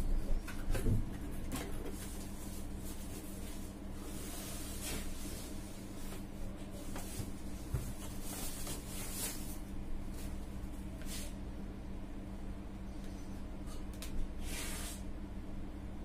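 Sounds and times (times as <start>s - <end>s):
steady low hum: 0.0s - 16.0s
cardboard rustling and scraping: 1.2s - 10.4s.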